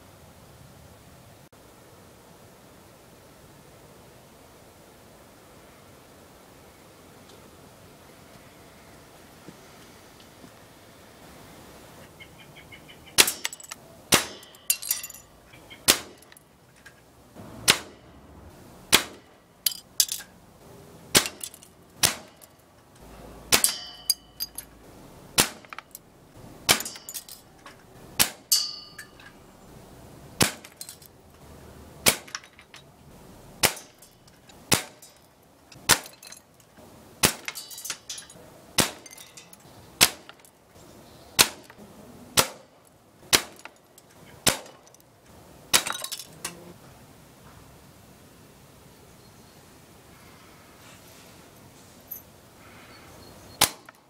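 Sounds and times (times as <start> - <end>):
pellets hitting plastic targets: 13.2 - 15.2, 18.9 - 20.2, 21.1 - 22.5, 25.3 - 26.0, 26.6 - 27.4
air gun firing: 14.1 - 14.7, 15.9 - 16.3, 17.6 - 18.0, 18.9 - 19.4, 21.1 - 22.4, 23.5 - 24.0, 25.4 - 25.8, 26.7 - 27.1, 28.2 - 28.8, 30.4 - 30.8, 32.0 - 32.4, 33.6 - 34.0, 34.7 - 35.0, 40.0 - 40.4, 41.4 - 41.7, 42.4 - 42.7, 44.4 - 44.8, 53.6 - 53.9.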